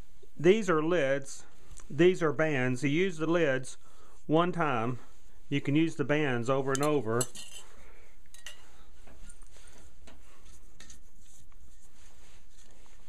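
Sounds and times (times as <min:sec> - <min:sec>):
metal scraping on glass: 0:06.8 - 0:07.7.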